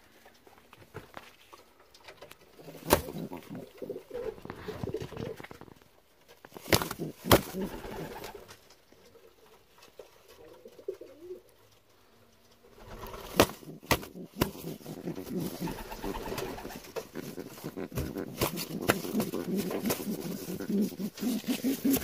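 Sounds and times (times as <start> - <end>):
pigeon cooing: 2.5 - 5.6, 6.6 - 8.4, 12.7 - 22.0
sharp wing slaps: 13.1 - 14.6.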